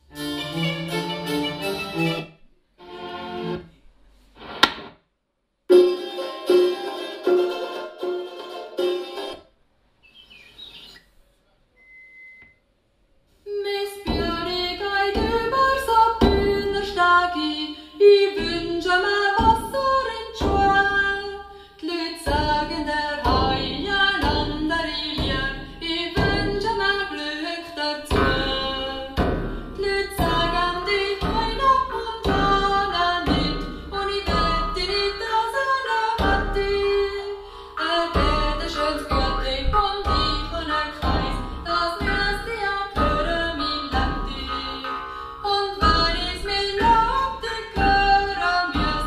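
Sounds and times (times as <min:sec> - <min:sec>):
pop music with female singer: 0:13.6 - 0:49.0.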